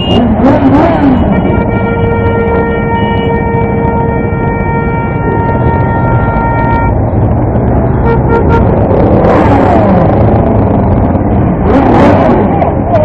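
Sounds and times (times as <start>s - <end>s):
motorcycle horn: 0.0s - 7.0s, 8.0s - 8.8s.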